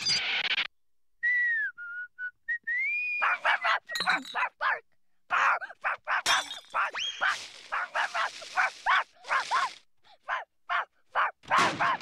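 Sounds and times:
cartoon dog yapping: 3.2 - 12.0
glass breaking: 6.3 - 7.5.

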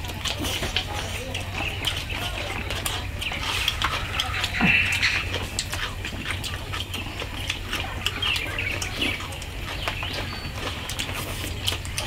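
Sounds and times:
birds chirping: 0.0 - 12.0
chewing: 0.0 - 12.0
chopsticks clicking against bowls: 0.0 - 12.0.

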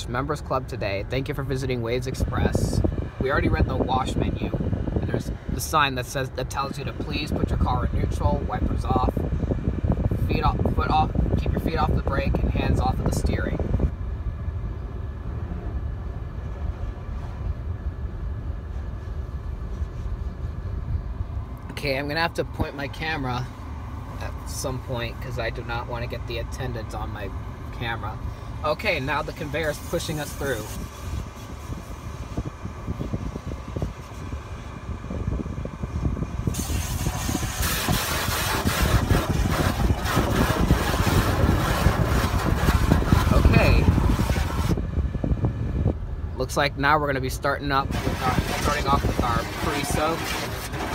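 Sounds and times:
steady low rumble: 0.0 - 50.9
car wash water spray hissing: 27.8 - 34.4, 36.1 - 44.8, 47.7 - 50.9.

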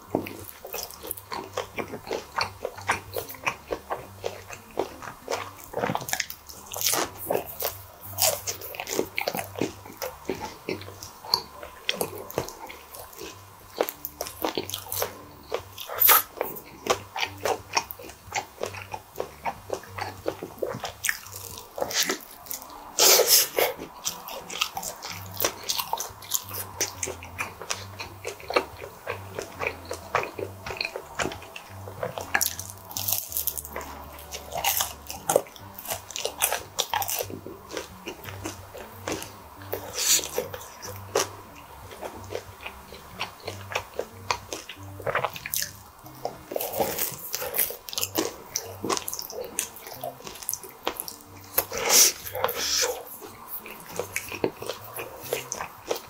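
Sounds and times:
chewing and crunching pizza: 0.0 - 56.0
wet mouth clicks: 42.0 - 56.0.

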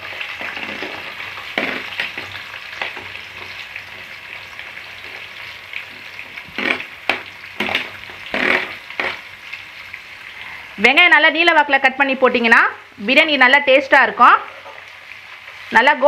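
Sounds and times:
onions sizzling in hot oil: 0.0 - 16.0
steel spoon scraping a pan: 7.6 - 9.2.

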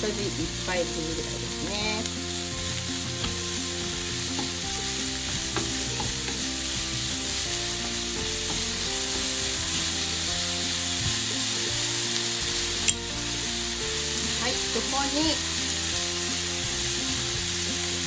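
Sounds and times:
food sizzling in a frying pan: 0.0 - 18.0
spatula tapping against pan: 5.2 - 6.4.

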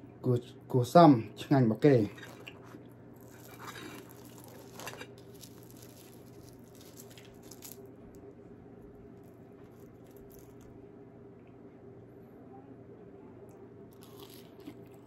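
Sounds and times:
low steady hum: 0.0 - 15.0
pastry crackling and rustling: 2.0 - 10.8.

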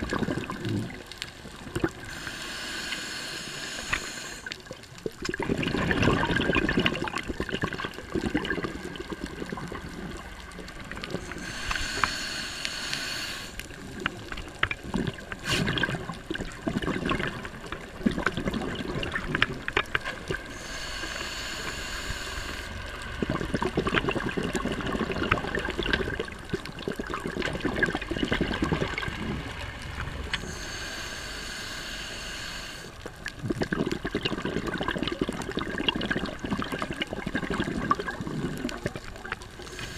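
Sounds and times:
gurgling exhaled bubbles: 0.0 - 2.2, 3.8 - 12.1, 13.7 - 20.9, 22.1 - 31.0, 32.9 - 39.9
regulator hiss on inhale: 2.0 - 4.6, 11.0 - 13.8, 15.3 - 15.8, 20.4 - 23.0, 30.3 - 33.1, 39.6 - 39.9.

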